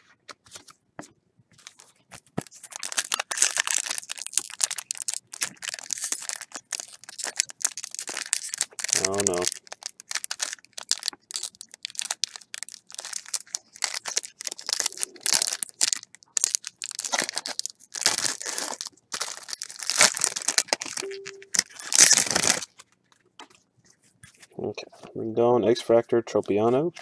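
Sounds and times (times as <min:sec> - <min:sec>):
foil wrappers tearing and crinkling: 0:01.6 - 0:23.0.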